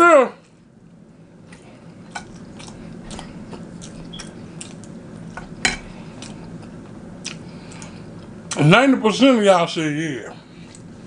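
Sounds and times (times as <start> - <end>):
low steady hum: 0.0 - 11.0
chewing with wet mouth clicks: 2.1 - 5.4, 6.2 - 8.6.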